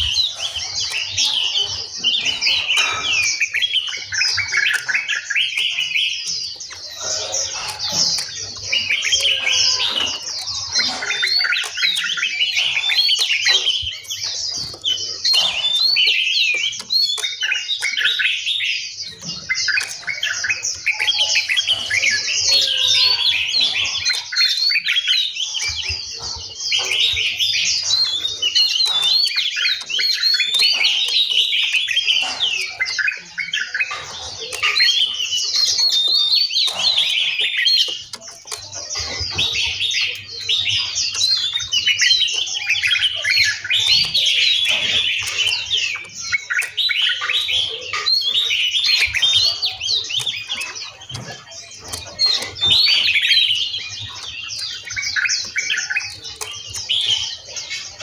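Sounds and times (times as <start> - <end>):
songbirds chirping and singing: 0.0 - 58.0.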